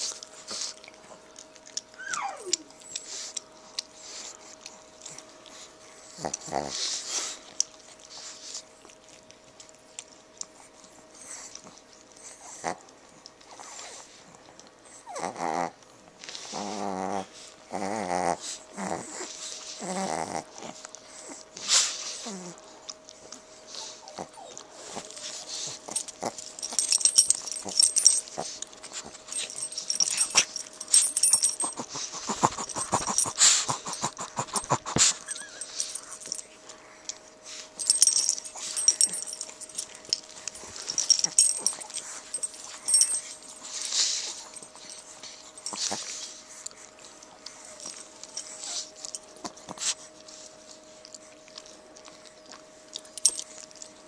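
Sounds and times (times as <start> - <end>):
dogs snuffling and wheezing: 0.0 - 54.0
dogs growling: 4.6 - 7.4, 11.2 - 12.9, 14.9 - 21.6, 23.6 - 37.2, 37.8 - 49.7.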